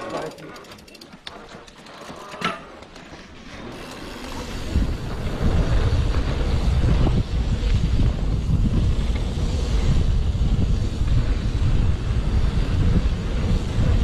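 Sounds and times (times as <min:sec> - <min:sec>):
wind buffeting microphone: 0:03.7 - 0:14.0.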